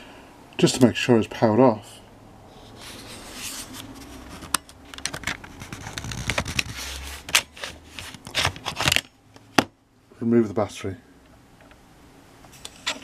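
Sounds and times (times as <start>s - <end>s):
plastic scraping: 2.8s - 9.1s.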